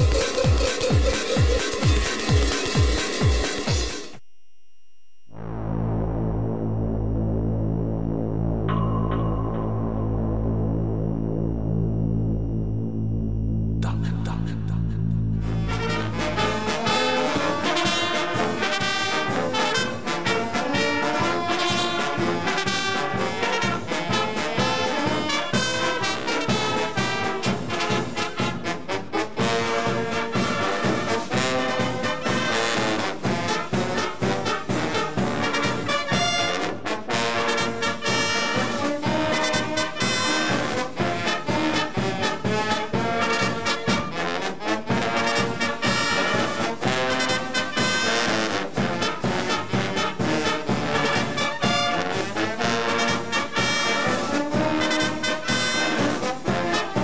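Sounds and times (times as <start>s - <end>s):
wind band playing: 15.4s - 57.0s.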